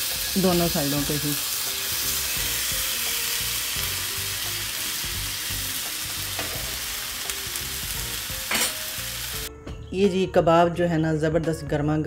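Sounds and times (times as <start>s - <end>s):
meat sizzling on griddle: 0.0s - 9.5s.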